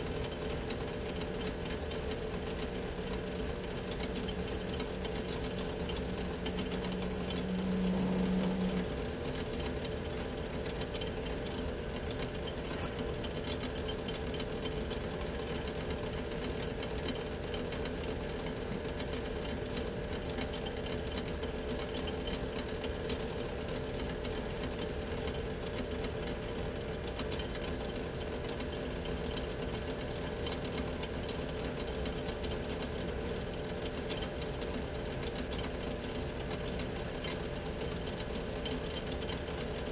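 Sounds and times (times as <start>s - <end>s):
metal lathe cutting: 1.2s - 13.4s
low hum: 3.6s - 10.8s.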